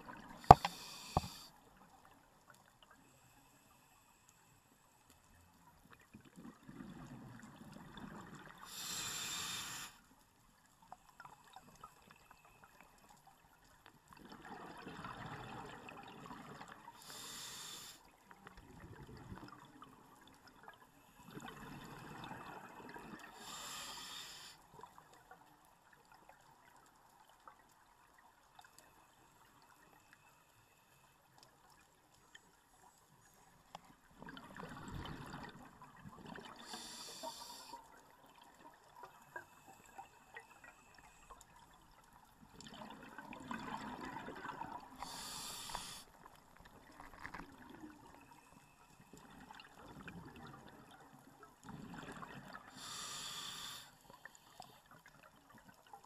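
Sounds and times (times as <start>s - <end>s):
regulator hiss: 0.4s - 1.5s, 8.7s - 10.0s, 17.1s - 18.0s, 23.5s - 24.6s, 36.7s - 37.8s, 45.0s - 46.1s, 52.8s - 54.0s
regulator bubbling gurgle: 42.5s - 45.2s.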